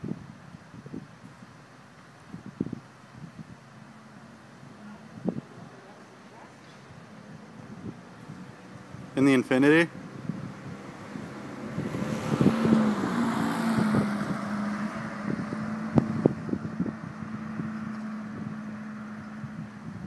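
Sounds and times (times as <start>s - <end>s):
low engine hum: 0.0s - 20.0s
car passing by: 4.8s - 19.8s.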